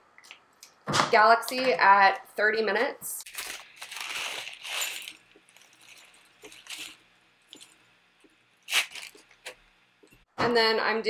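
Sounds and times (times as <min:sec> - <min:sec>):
foil bag crinkling: 0:03.3 - 0:07.9, 0:08.5 - 0:09.6.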